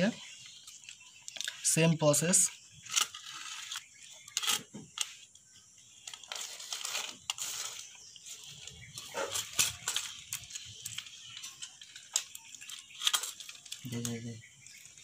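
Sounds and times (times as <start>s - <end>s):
wire rustling: 6.0s - 15.0s.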